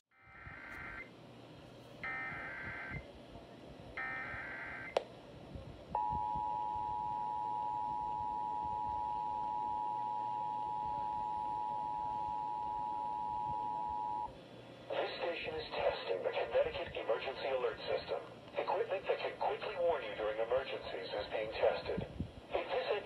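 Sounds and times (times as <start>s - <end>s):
steady attention tone: 0.1s - 1.1s, 2.0s - 3.0s, 4.0s - 5.0s, 6.0s - 14.4s.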